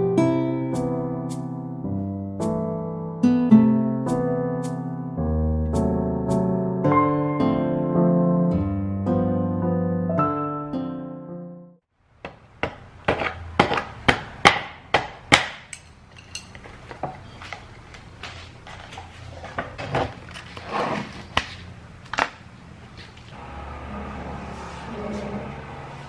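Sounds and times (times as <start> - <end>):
paper lid rustling: 18.3 - 22.2.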